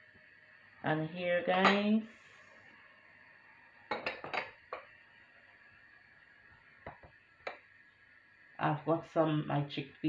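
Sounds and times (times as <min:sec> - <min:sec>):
bowls and dishes clinking: 0:03.9 - 0:04.9.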